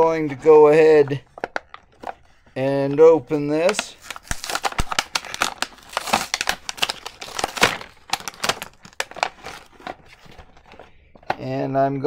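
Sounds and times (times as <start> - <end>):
plastic packaging crinkling: 1.1 - 11.4.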